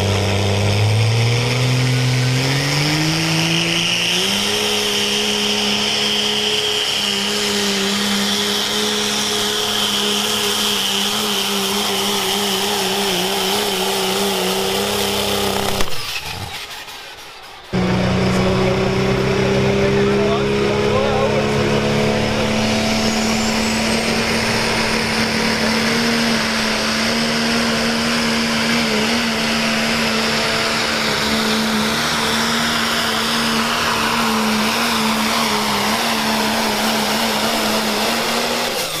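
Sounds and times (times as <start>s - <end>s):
diesel truck engine at high revs: 0.0s - 39.0s
thin high whine: 22.7s - 25.7s.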